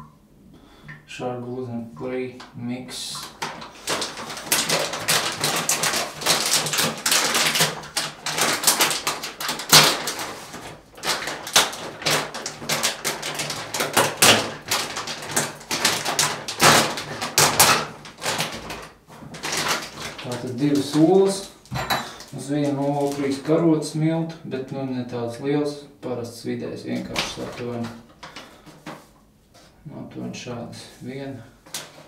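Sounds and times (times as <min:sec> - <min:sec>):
paper flour bag crinkling: 0:03.2 - 0:23.7, 0:26.8 - 0:29.2.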